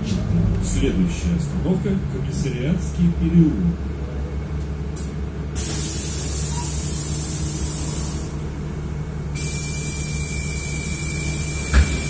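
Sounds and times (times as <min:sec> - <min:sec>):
bus engine idling: 0:00.0 - 0:12.0
loud hiss: 0:05.6 - 0:08.3.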